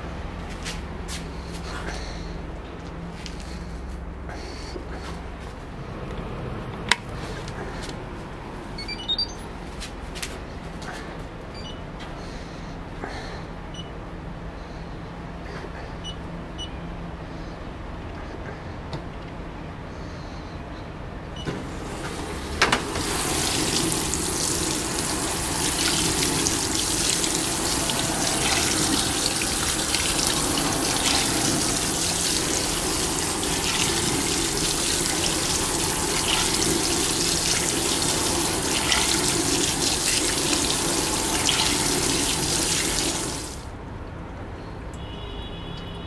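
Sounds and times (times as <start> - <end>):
washing machine click: 21.4 - 24.0
water spraying into washer tub: 21.6 - 43.7.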